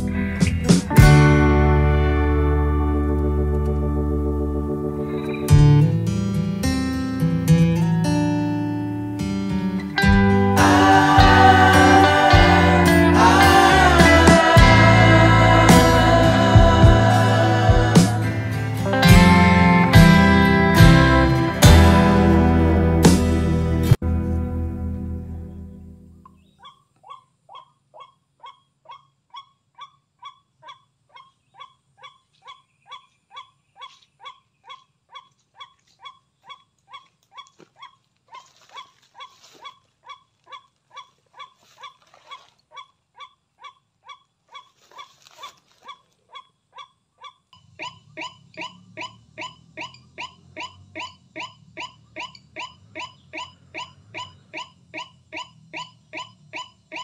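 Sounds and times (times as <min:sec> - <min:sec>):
waterhen harsh call: 0:38.7 - 0:57.0.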